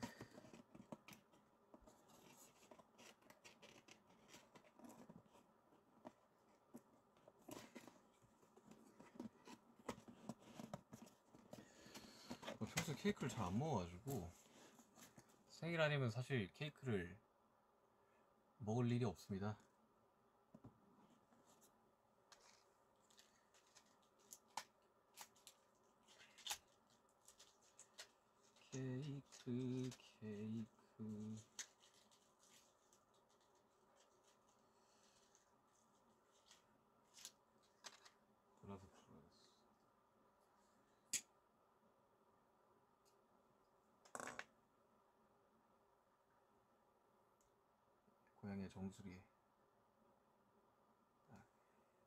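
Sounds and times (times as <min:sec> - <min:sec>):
faint clicks and rustles: 0:31.0 - 0:38.2.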